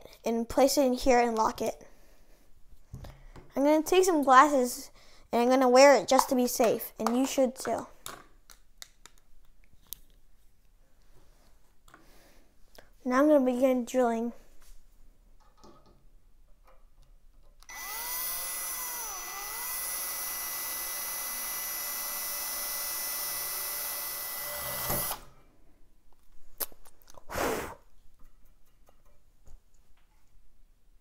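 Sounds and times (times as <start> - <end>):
cordless drill whine: 17.7 - 25.3.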